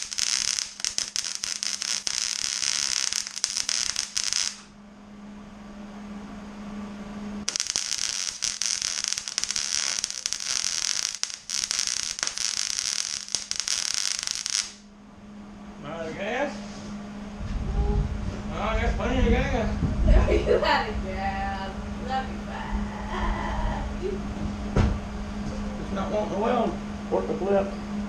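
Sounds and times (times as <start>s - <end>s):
welding arc crackling: 0.0s - 4.7s, 7.4s - 14.9s
steady low hum: 0.0s - 28.0s.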